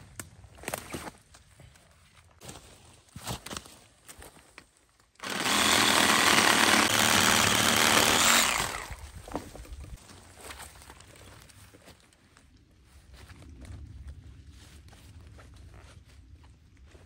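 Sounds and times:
battery chainsaw cutting log: 5.2 - 9.1.

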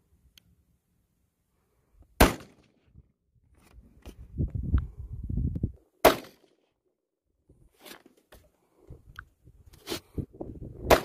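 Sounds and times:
rifle shots cracking: 2.2 - 2.7, 6.0 - 6.5.

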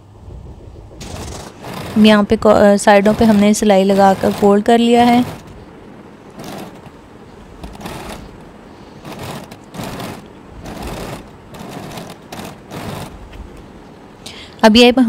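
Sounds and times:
sewing machine stitching: 1.0 - 5.6, 6.3 - 7.0, 7.6 - 8.4, 9.0 - 13.2.

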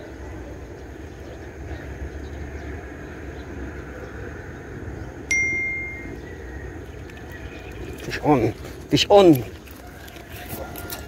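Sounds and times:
low outdoor background noise: 0.0 - 11.0
metallic bell ding: 5.3 - 6.2.

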